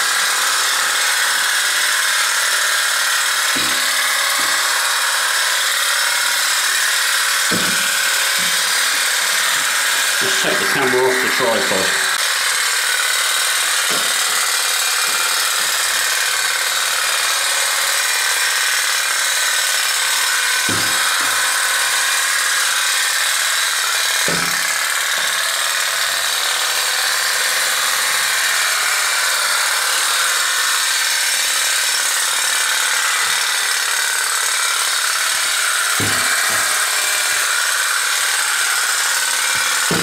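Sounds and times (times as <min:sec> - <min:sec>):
toy steam boat buzzing: 0:00.0 - 0:40.0.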